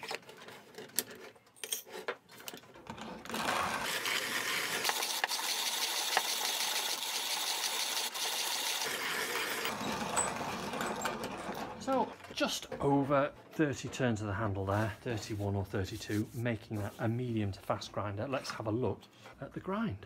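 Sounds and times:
coffee beans being ground: 0:03.0 - 0:12.1.

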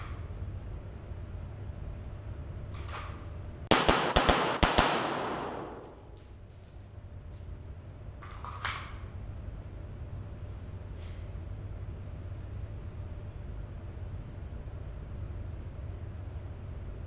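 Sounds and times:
rapid pistol shots echoing: 0:03.7 - 0:06.1.

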